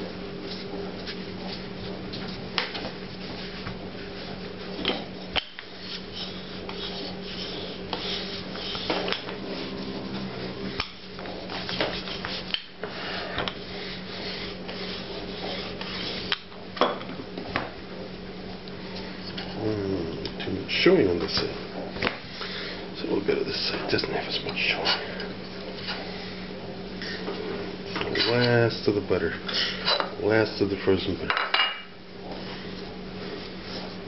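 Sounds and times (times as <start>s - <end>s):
rolling pin rubbing on dough: 0.4s - 16.5s, 32.2s - 34.0s
low hum: 8.5s - 11.9s.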